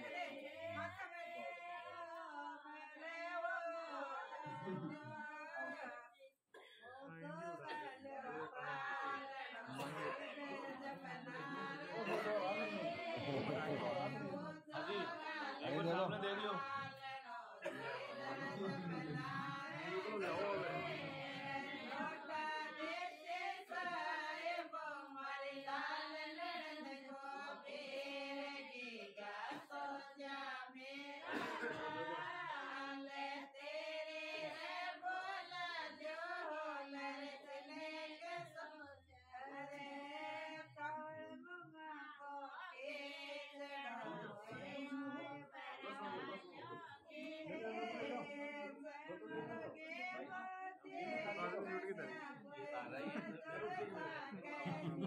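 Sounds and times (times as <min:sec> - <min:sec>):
group singing without instruments: 0:00.0 - 0:55.0.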